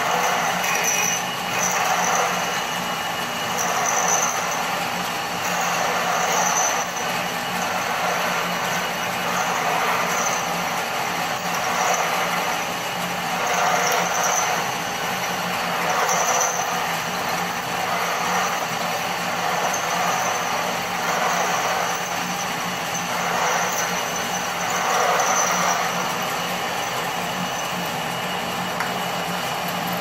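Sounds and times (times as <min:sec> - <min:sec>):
drill bit whining: 0:00.0 - 0:30.0
lathe running: 0:00.0 - 0:30.0.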